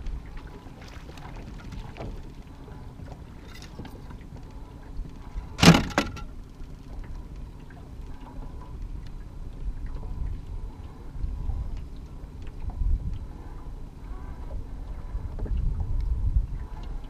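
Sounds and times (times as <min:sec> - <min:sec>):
wind and water noise: 0:00.0 - 0:17.0
sharp knock on boat: 0:05.6 - 0:06.3.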